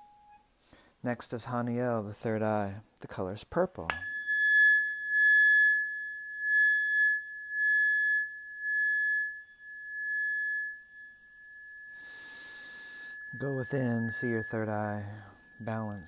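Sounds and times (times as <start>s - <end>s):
tuning fork ringing: 0.0s - 0.4s, 3.9s - 16.0s.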